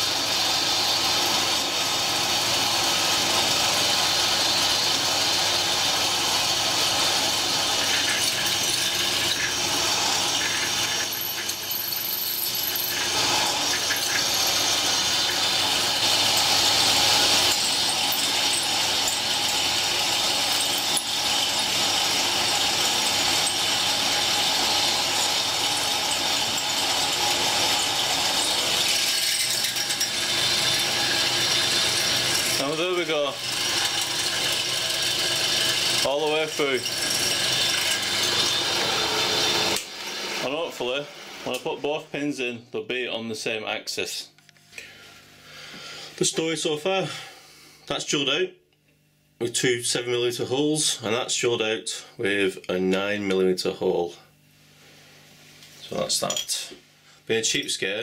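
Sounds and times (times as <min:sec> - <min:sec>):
pillar drill grinding through metal: 0:00.0 - 0:41.6.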